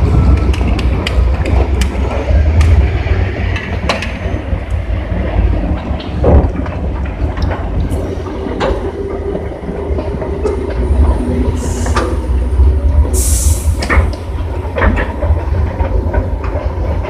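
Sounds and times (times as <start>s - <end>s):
diesel engines rumbling: 0.0s - 17.0s
clanks and knocks: 0.2s - 12.2s, 13.8s - 17.0s.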